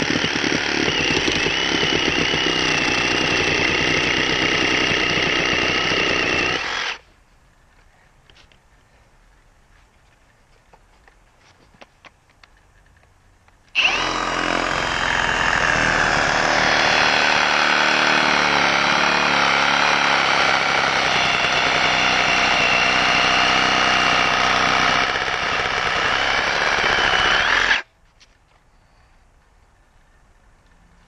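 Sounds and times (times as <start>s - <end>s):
reciprocating saw cutting wood: 0.0s - 7.1s, 13.8s - 27.9s.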